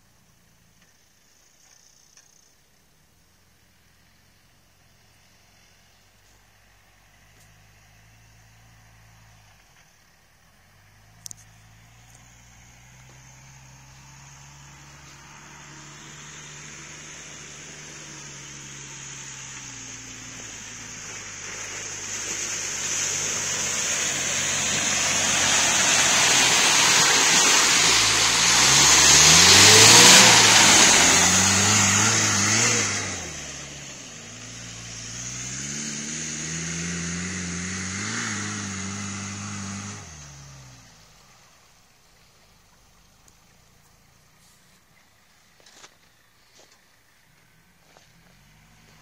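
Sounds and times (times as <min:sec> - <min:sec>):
engine revving: 0:10.6 - 0:41.7, 0:47.9 - 0:49.0.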